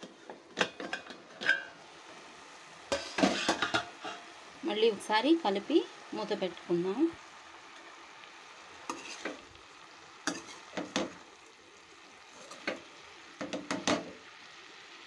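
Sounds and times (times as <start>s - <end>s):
metal spatula scraping a pan: 0.0s - 1.8s, 2.9s - 4.4s, 8.8s - 9.4s, 10.2s - 11.2s, 12.3s - 12.9s
greens sizzling: 0.0s - 15.0s.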